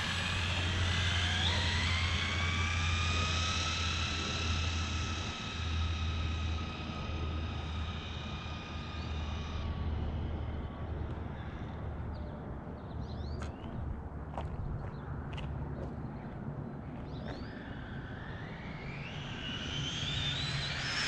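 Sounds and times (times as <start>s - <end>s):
electric motor whining: 0.0s - 11.9s, 17.1s - 21.0s.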